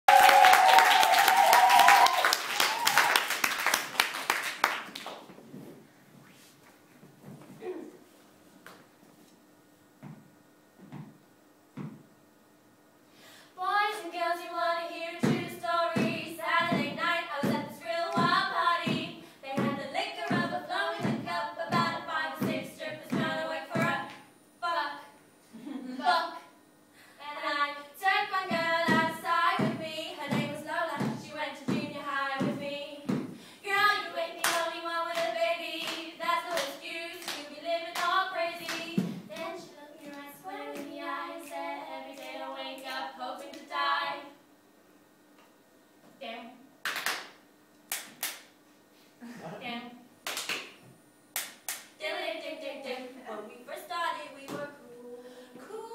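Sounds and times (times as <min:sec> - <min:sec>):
hand claps: 0:00.1 - 0:05.3, 0:34.4 - 0:37.4, 0:46.8 - 0:48.6, 0:50.2 - 0:51.9
woman singing a cappella: 0:13.6 - 0:26.5, 0:27.2 - 0:44.4, 0:52.0 - 0:55.9.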